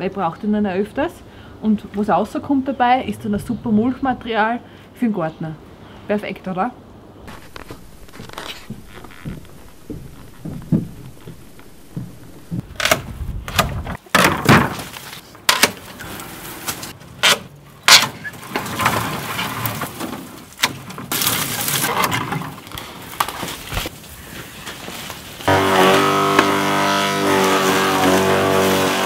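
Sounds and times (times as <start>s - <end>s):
loud steady droning: 7.3s - 12.8s, 25.5s - 29.0s
twigs rustling: 7.3s - 13.0s, 18.2s - 25.6s
woody stems snapping: 7.3s - 14.0s.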